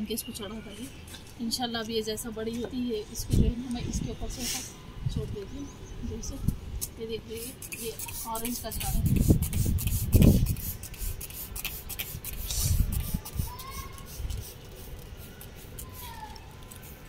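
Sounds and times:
spray bottle squirting: 6.8s - 17.0s.

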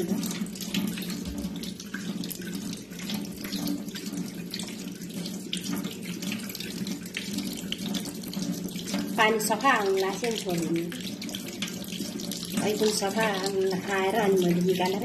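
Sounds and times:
tap running into a steel sink: 0.0s - 2.2s
hands squeezing wet dough: 0.0s - 15.0s.

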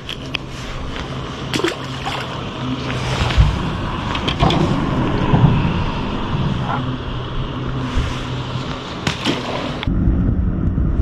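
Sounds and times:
clicks and scrapes handling fish: 0.0s - 3.5s
steady low hum: 0.0s - 11.0s.

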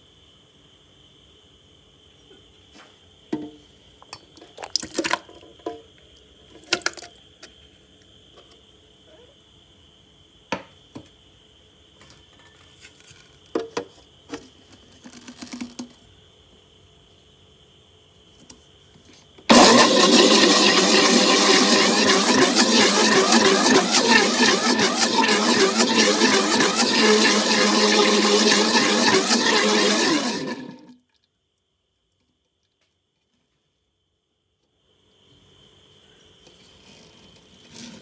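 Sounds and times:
blender running: 19.5s - 31.0s.

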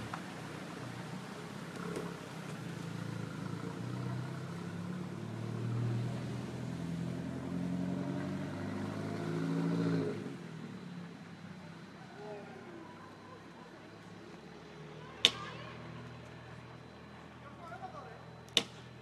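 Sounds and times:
vehicle engine revving: 1.2s - 11.7s.

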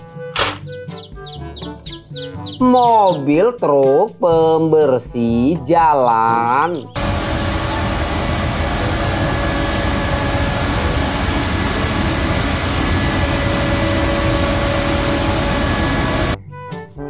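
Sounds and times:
faint whining tones: 7.0s - 16.4s
road sweeper engine and suction fan: 7.0s - 16.4s.

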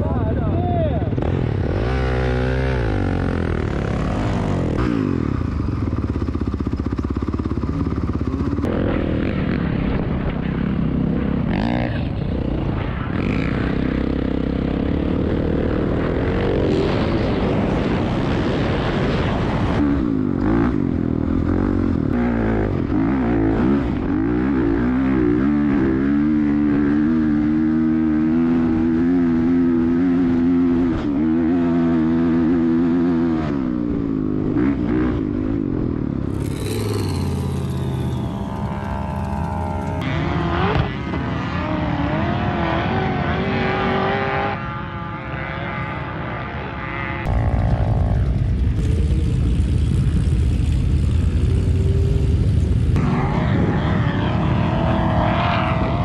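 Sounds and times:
dirt bike engine revving: 1.0s - 56.0s.

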